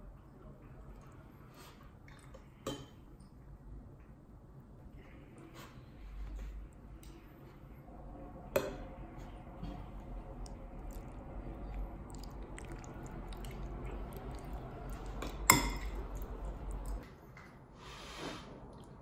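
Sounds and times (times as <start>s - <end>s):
spoon stirring thick food: 9.8s - 17.0s
spoon clinking on ceramic bowl: 15.3s - 16.0s.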